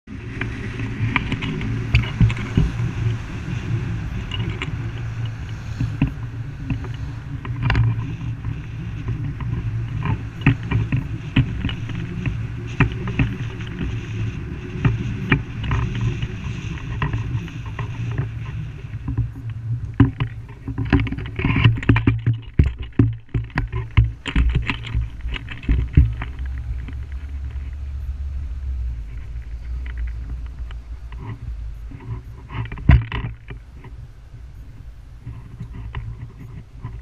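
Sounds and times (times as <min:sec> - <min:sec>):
low rumble of wind: 0:00.0 - 0:37.0
knocks and thumps over rough ground: 0:00.1 - 0:37.0.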